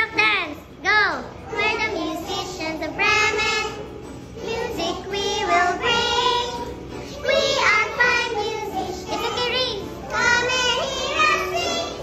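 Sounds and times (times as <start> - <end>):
child singing with music: 0.0 - 12.0.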